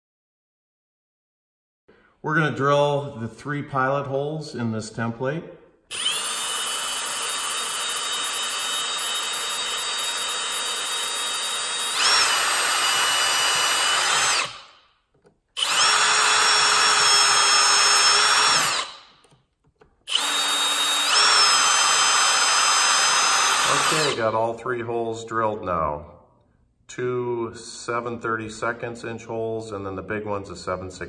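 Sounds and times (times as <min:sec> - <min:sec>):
cordless drill whining: 0:05.9 - 0:14.8, 0:15.6 - 0:19.4, 0:20.0 - 0:24.3.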